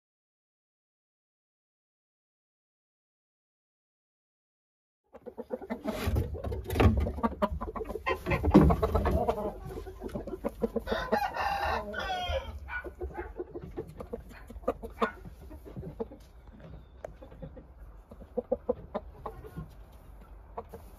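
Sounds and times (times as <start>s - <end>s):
chicken clucking: 5.1s - 20.9s
rooster crowing: 10.8s - 12.8s.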